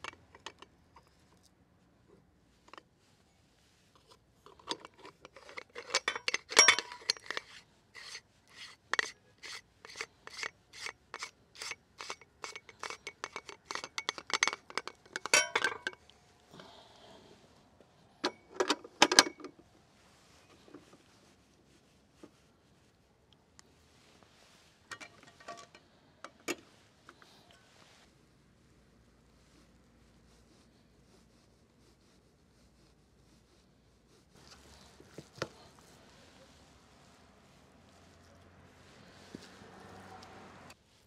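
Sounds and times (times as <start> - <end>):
metal parts clicking and clinking: 4.4 - 16.0, 24.9 - 26.6.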